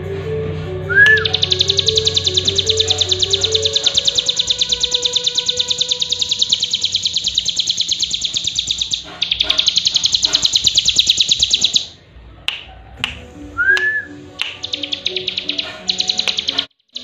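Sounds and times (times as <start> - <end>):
songbird trilling: 1.0 - 12.0, 14.4 - 17.0
sharp clicks: 1.1 - 11.9, 13.8 - 17.0.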